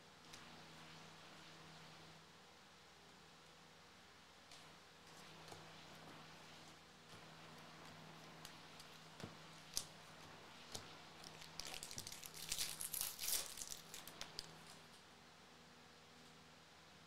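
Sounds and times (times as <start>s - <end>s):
foil pack crinkling and tearing: 11.2s - 14.8s.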